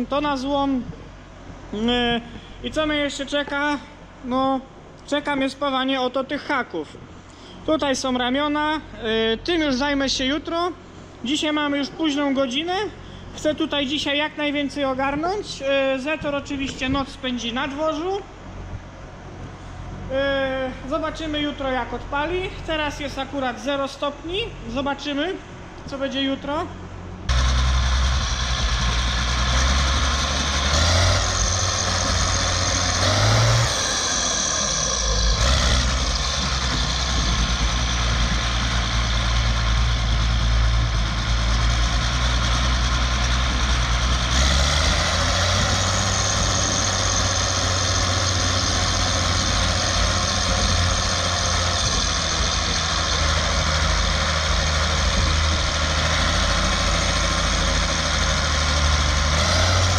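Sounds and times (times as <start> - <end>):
tractor diesel engine running: 26.8 - 59.9.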